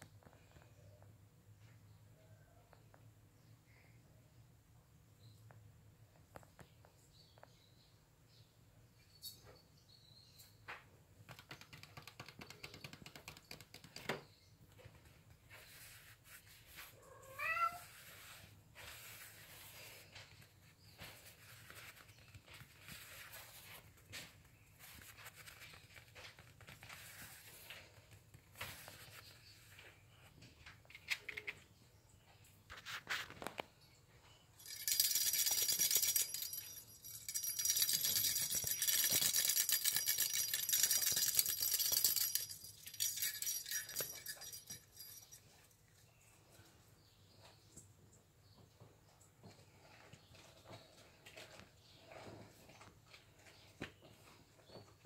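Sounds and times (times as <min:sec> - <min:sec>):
kitten meowing: 0:17.0 - 0:17.9
small bell jingling: 0:34.6 - 0:46.3.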